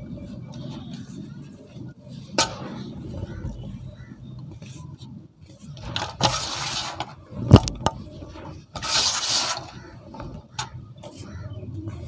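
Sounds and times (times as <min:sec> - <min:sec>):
cement powder pouring: 0:08.8 - 0:09.7.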